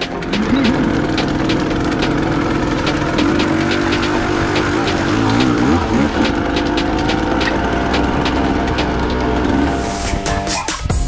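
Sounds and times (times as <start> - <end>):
dirt bike engines revving: 0.0 - 10.4.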